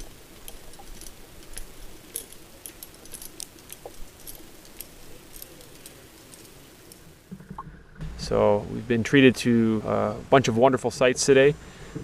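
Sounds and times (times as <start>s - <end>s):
light clicking and clinking: 0.0s - 7.6s.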